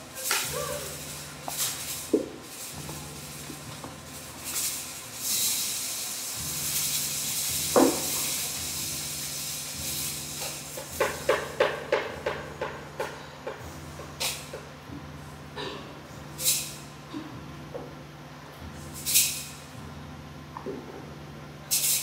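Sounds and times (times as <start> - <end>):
breathy hiss: 0.0 - 17.6
low sound system hum: 0.0 - 22.0.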